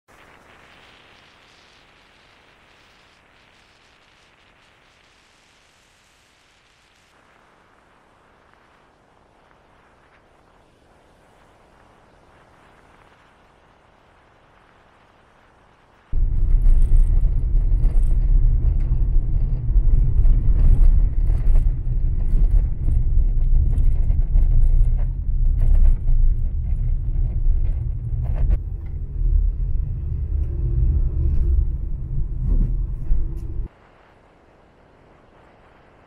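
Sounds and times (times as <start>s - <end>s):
vehicle engine rumble: 16.2s - 33.7s.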